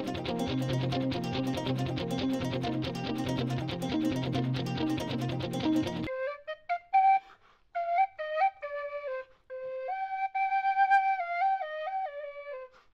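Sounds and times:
strummed guitar: 0.0 - 6.1
solo flute melody: 5.8 - 12.9.

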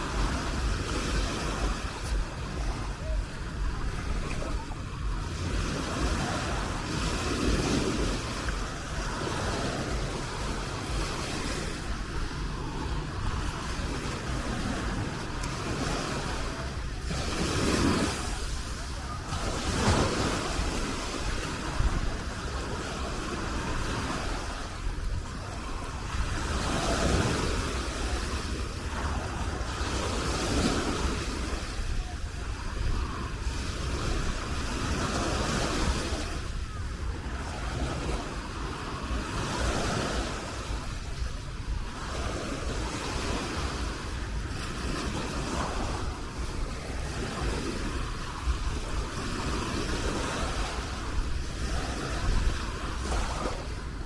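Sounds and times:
small waves breaking on shore: 0.0 - 54.0
wind rumble on microphone: 0.0 - 54.0.

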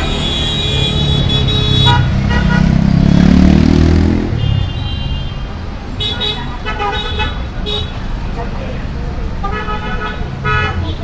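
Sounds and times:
vehicle horns: 0.0 - 2.9, 4.1 - 8.1, 9.4 - 11.0
motor vehicle passing: 0.8 - 4.4.

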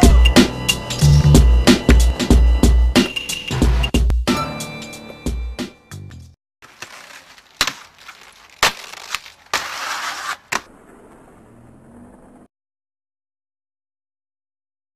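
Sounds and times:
skates clacking on stone: 6.6 - 10.7
skate grinding along ledge: 6.6 - 12.5.

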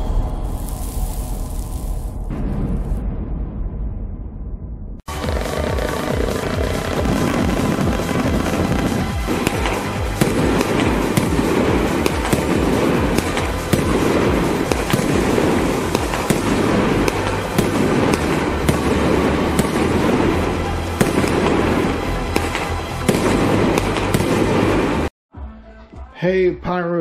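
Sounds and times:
firework crackling: 0.0 - 3.0, 5.1 - 25.1
firework shots bursting: 5.1 - 25.1
background music: 5.1 - 27.0.

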